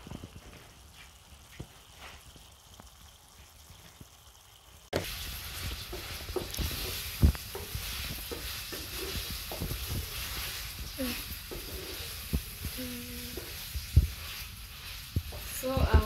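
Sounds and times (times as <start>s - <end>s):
food sizzling in a metal pan: 0.0s - 16.0s
wooden spoon knocking pan: 5.0s - 10.6s.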